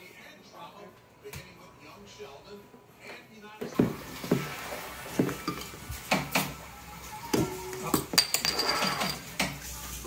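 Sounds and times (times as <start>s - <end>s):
bottle and opener clinking: 7.3s - 9.3s.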